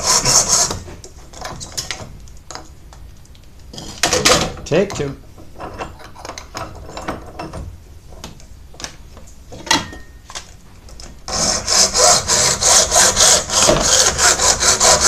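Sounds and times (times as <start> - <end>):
hacksaw cutting plastic: 0.0 - 0.9, 11.3 - 15.0.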